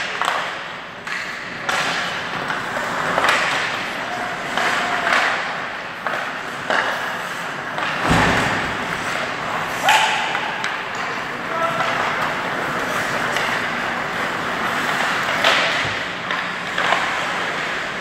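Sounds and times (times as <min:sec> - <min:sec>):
hockey sticks and puck knocking: 0:00.0 - 0:18.0.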